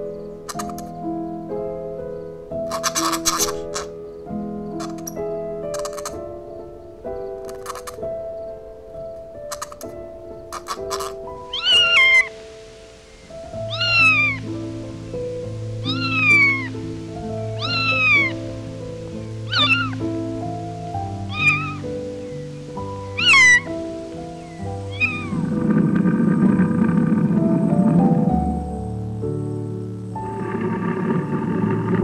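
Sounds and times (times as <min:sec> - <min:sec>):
background music: 0:00.0 - 0:32.0
cat meowing: 0:10.6 - 0:12.4, 0:13.5 - 0:14.5, 0:15.8 - 0:16.8, 0:17.5 - 0:18.4, 0:19.3 - 0:20.0, 0:21.1 - 0:21.9, 0:23.2 - 0:23.7, 0:24.5 - 0:25.4.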